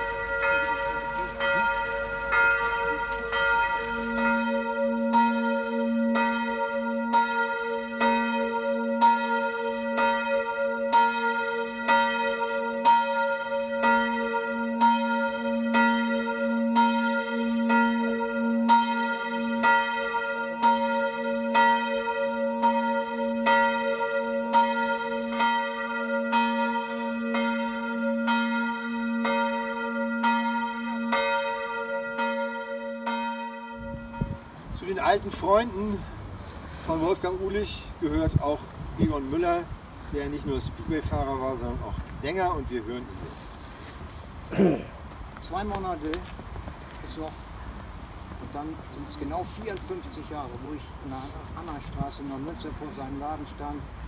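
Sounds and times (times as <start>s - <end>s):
bell tolling: 0.0s - 11.3s.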